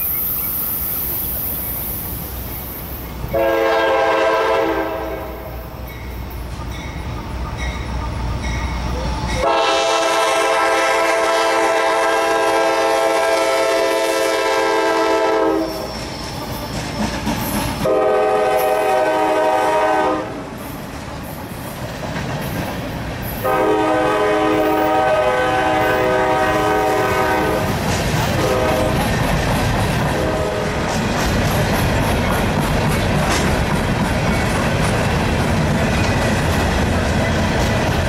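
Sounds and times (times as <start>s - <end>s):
passing train rumble: 0.0s - 38.0s
locomotive air horn blasts: 3.3s - 5.7s, 9.4s - 15.9s, 17.8s - 20.4s, 23.4s - 29.1s, 30.1s - 30.8s.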